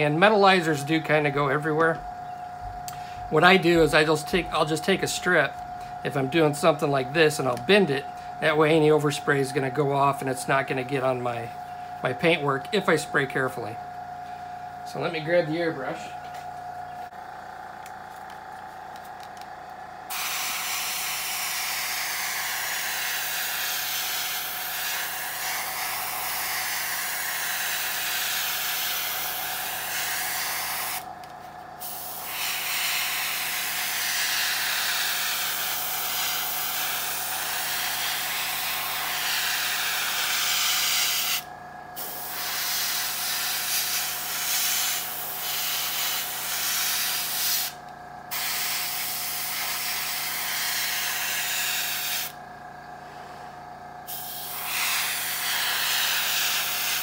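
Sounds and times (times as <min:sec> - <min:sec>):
faint steady hum: 0:00.0 - 0:42.4
airbrush spraying: 0:20.1 - 0:31.1, 0:31.8 - 0:41.4, 0:42.0 - 0:52.4, 0:54.1 - 0:57.0.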